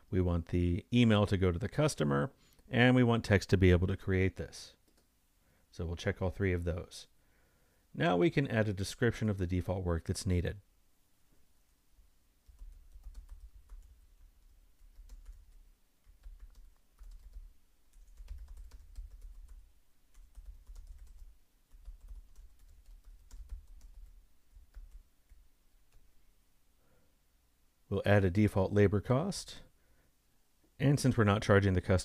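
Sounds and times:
faint keyboard typing: 0:04.8 - 0:05.1, 0:12.4 - 0:26.1.

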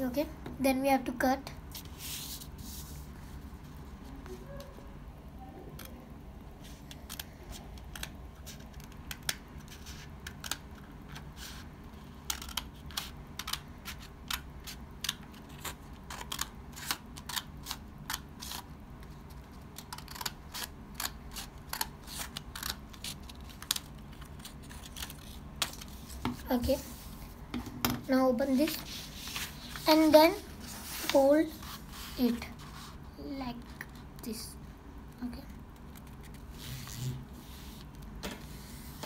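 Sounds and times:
low steady hum: 0:00.0 - 0:39.0
scissors snipping paper: 0:19.7 - 0:25.9.

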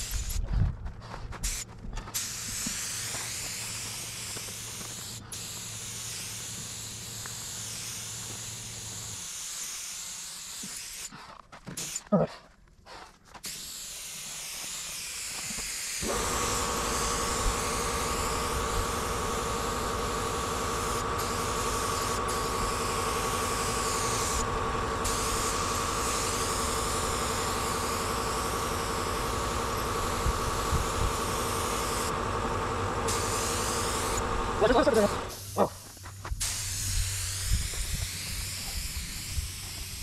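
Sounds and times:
spray gun hissing: 0:02.2 - 0:11.2, 0:13.4 - 0:40.0
motor humming: 0:16.0 - 0:35.6.

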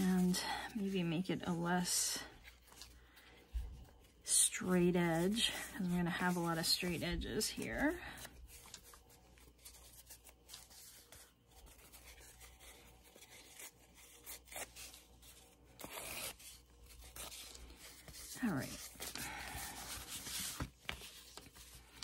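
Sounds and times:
paper rustling and rubbing: 0:00.1 - 0:22.0
paper ripping: 0:07.4 - 0:22.0.

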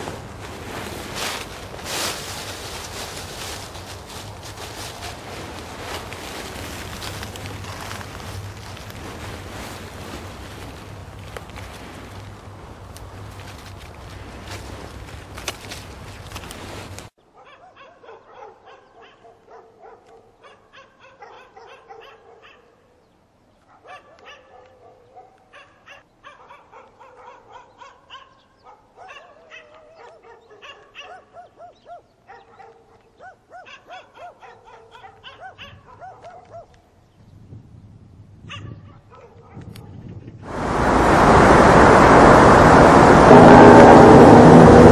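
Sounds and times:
dogs barking and yipping: 0:17.4 - 0:22.8, 0:23.6 - 0:36.7, 0:38.5 - 0:39.7.

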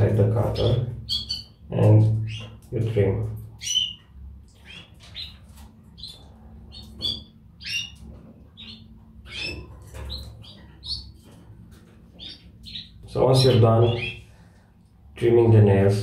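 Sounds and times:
canaries chirping: 0:00.0 - 0:16.0.

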